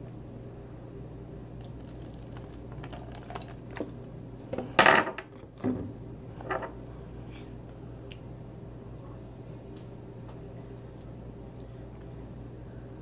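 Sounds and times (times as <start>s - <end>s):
water pouring into a cup: 1.6s - 4.1s.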